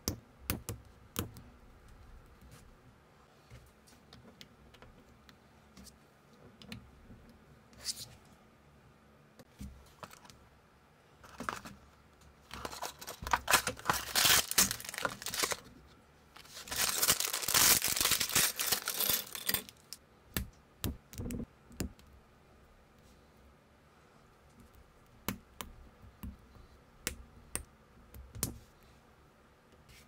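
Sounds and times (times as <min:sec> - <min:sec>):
packaging torn and crinkled: 0:12.6 - 0:15.7, 0:16.4 - 0:20.0.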